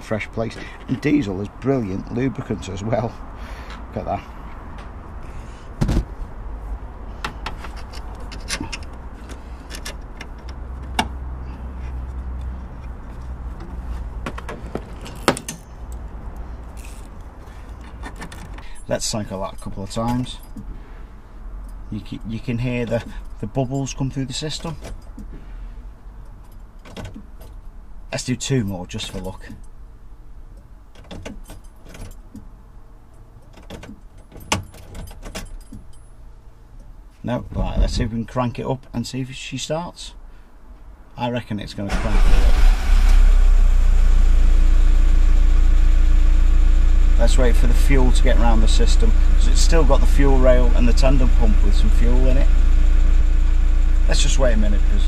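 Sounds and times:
low steady hum: 0:34.1 - 0:55.0
low steady rumble: 0:40.3 - 0:55.0.

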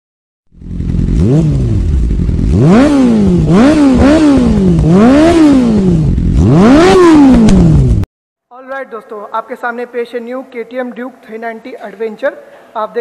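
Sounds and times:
motorcycle engine revving: 0:00.5 - 0:08.1.

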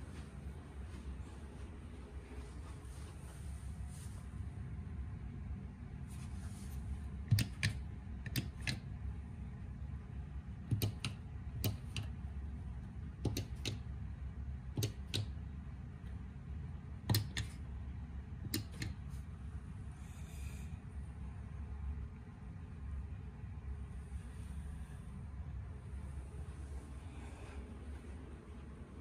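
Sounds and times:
steady low hum: 0:00.0 - 0:29.0
sharp clicks: 0:07.3 - 0:08.9, 0:10.7 - 0:12.2, 0:13.2 - 0:13.9, 0:14.7 - 0:15.4, 0:17.1 - 0:17.6, 0:18.4 - 0:19.0.

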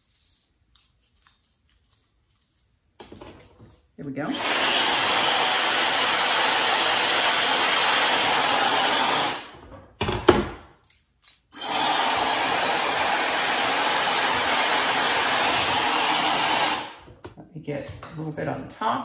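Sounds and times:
hair dryer blowing: 0:04.2 - 0:09.6, 0:11.6 - 0:17.1.

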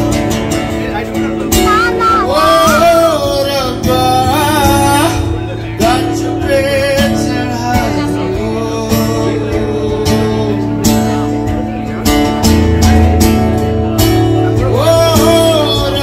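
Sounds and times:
acoustic guitar: 0:00.0 - 0:16.0
man singing: 0:01.5 - 0:11.9, 0:14.5 - 0:16.0.

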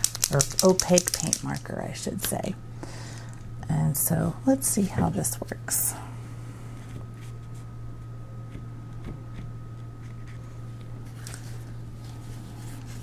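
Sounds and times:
marker tapping and scratching: 0:00.0 - 0:01.7
low electrical hum: 0:00.0 - 0:13.0.

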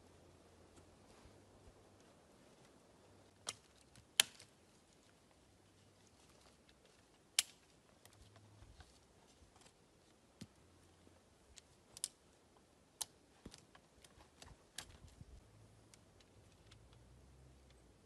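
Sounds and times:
sharp wooden cracks: 0:03.4 - 0:04.5.

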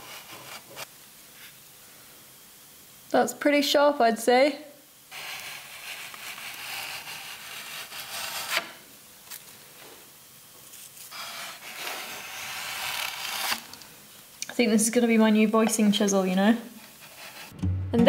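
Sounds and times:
chisel scraping wood: 0:00.0 - 0:00.9, 0:05.1 - 0:08.8, 0:11.1 - 0:13.6, 0:16.8 - 0:17.6.

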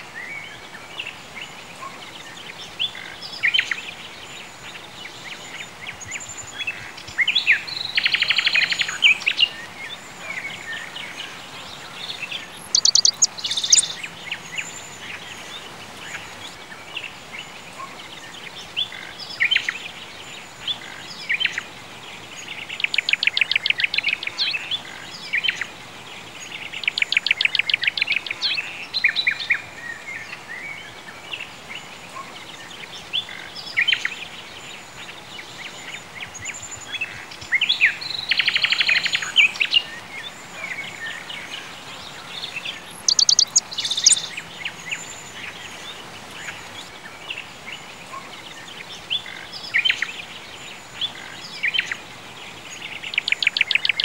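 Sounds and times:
faint background hiss: 0:00.0 - 0:54.0
birds chirping and singing: 0:00.1 - 0:54.0
rapid bird trills: 0:12.1 - 0:16.6, 0:42.0 - 0:46.8.

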